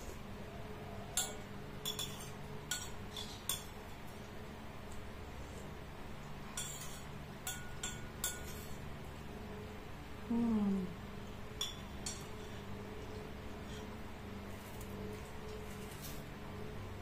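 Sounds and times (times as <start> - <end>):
metal spoon clinking on ceramic bowl: 1.1 - 3.8, 6.6 - 8.8, 11.6 - 12.4.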